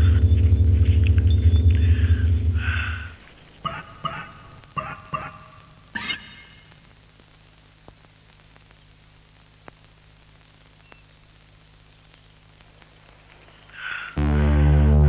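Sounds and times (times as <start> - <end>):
low hum: 0.0 - 4.7, 14.2 - 15.0
faint hiss: 5.7 - 15.0.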